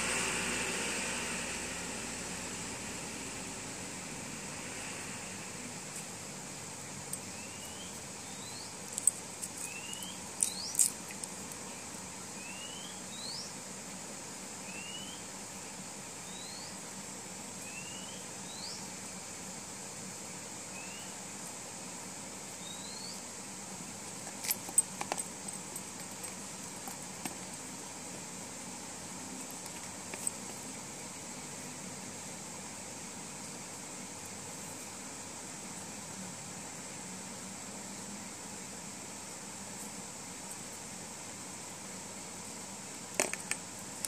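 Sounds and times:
faint steady hiss: 0:00.0 - 0:44.0.

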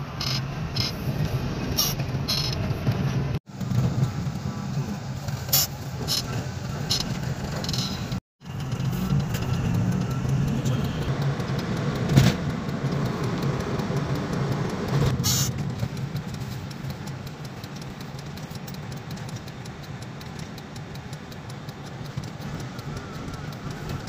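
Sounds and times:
car engine and road rumble: 0:00.0 - 0:24.0.

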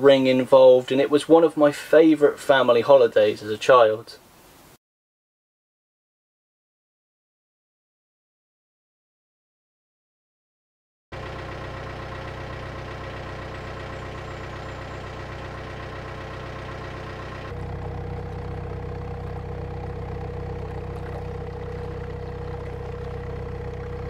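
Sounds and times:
diesel engine chugging: 0:11.2 - 0:24.0.

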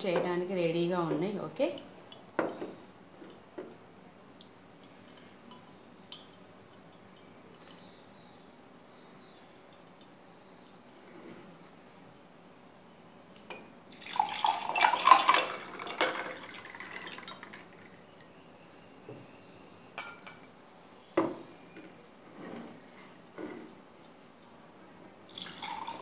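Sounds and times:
water pouring into a glass: 0:13.9 - 0:18.0, 0:25.3 - 0:26.0.

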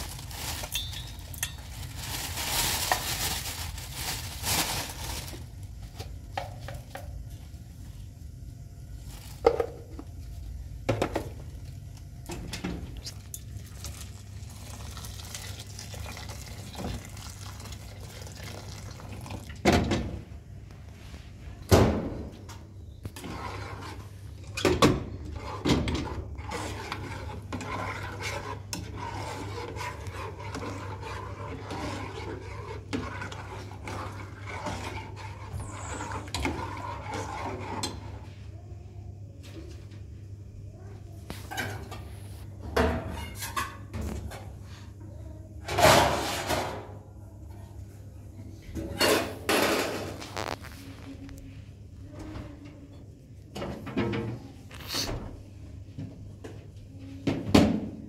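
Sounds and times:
metal pots and ladle clanging: 0:00.4 - 0:01.9
liquid sloshing in a pot: 0:12.8 - 0:19.7, 0:23.1 - 0:38.5.

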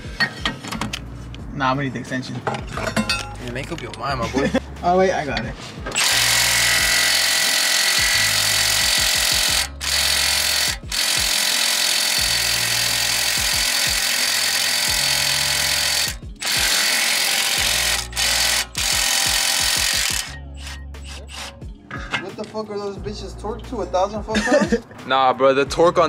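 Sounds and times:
background music: 0:00.0 - 0:26.0
impact wrench hammering: 0:05.9 - 0:21.6.

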